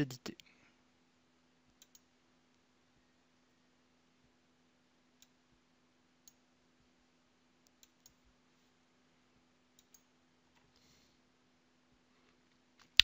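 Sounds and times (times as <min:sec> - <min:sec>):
low steady hum: 0:00.0 - 0:13.0
faint computer mouse clicks: 0:01.8 - 0:02.1, 0:09.8 - 0:10.7.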